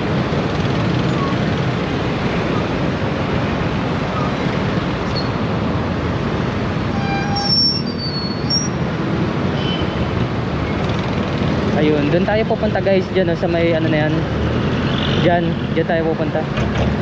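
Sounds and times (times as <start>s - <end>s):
scooter engine and wind noise: 0.0s - 12.5s
high-pitched sliding squeal: 6.9s - 8.8s.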